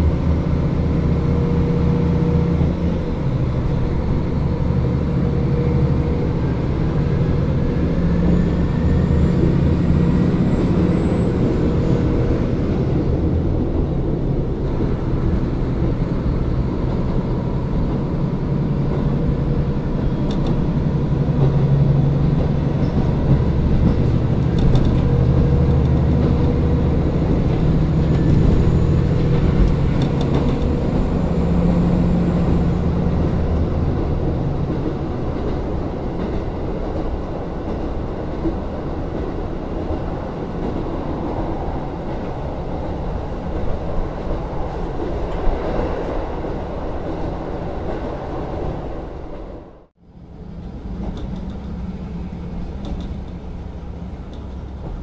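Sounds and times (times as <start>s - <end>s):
diesel engine drone: 0.0s - 55.0s
train wheels clicking: 18.8s - 48.2s, 50.6s - 55.0s.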